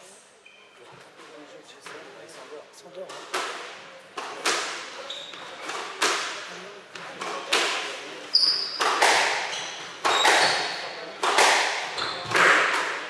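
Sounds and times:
squash ball hits echoing: 3.1s - 13.0s
shoes squeaking on wooden floor: 4.9s - 5.9s, 8.2s - 10.9s, 11.9s - 12.5s.

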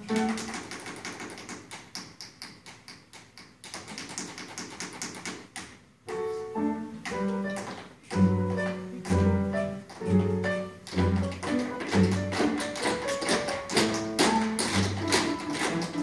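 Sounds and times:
typewriter-like clicks: 0.0s - 5.8s, 10.9s - 16.0s
orchestra playing: 8.2s - 12.6s.

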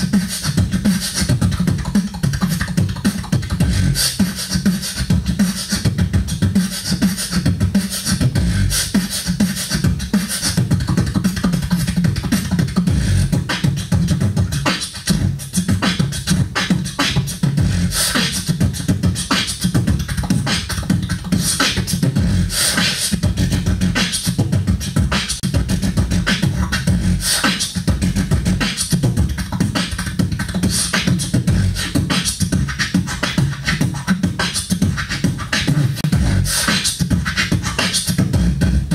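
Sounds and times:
beatboxing into a microphone: 0.0s - 38.9s.

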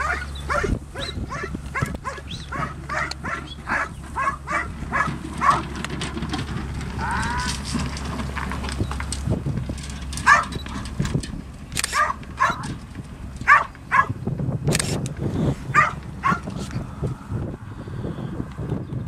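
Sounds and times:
dog barking: 0.0s - 5.6s, 10.2s - 10.5s, 11.9s - 12.7s, 13.4s - 14.2s, 15.7s - 16.5s.

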